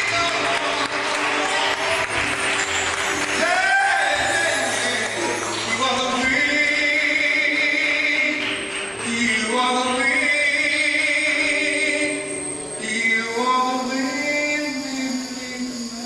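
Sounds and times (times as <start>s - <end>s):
man singing into a microphone: 3.4s - 16.0s.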